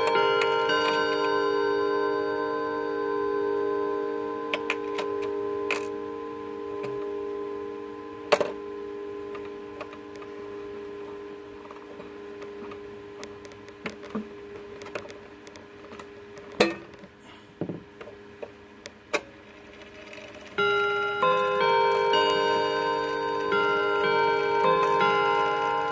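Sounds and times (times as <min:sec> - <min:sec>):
clock mechanism ticks: 0:00.0 - 0:01.4, 0:20.0 - 0:25.9
clock chime rods ringing: 0:00.0 - 0:12.9, 0:19.8 - 0:25.9.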